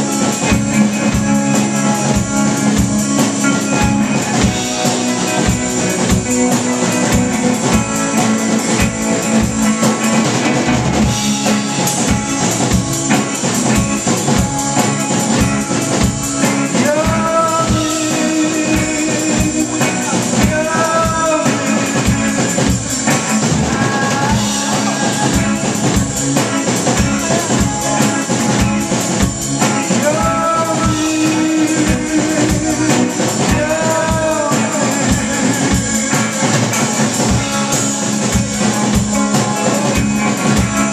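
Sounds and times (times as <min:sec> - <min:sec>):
drum kit beat: 0:00.0 - 0:40.9
electric guitars: 0:00.0 - 0:40.9
man singing: 0:16.3 - 0:28.8, 0:29.6 - 0:38.2, 0:38.8 - 0:40.9.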